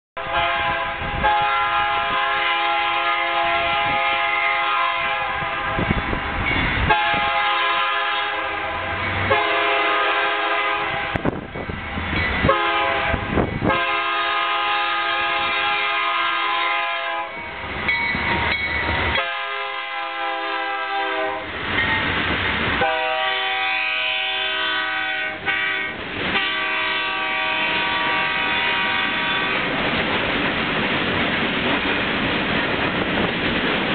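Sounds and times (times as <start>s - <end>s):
locomotive air horn blasts: 0.2s - 6.2s, 6.9s - 11.4s, 12.4s - 17.4s, 19.2s - 21.6s, 22.8s - 29.7s
freight cars rumbling and clattering: 5.4s - 7.2s, 11.0s - 13.8s, 25.4s - 26.8s, 27.6s - 33.9s.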